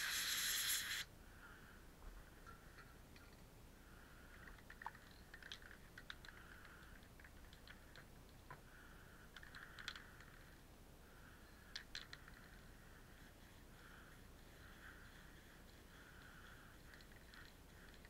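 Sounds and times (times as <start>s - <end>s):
soft hiss: 0.0s - 5.4s
faint clicks and ticks: 2.2s - 18.0s.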